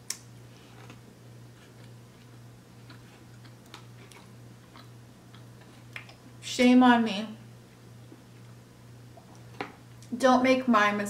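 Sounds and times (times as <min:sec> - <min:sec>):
steady low hum: 0:00.0 - 0:11.0
soft chewing: 0:00.1 - 0:06.4, 0:07.6 - 0:10.1.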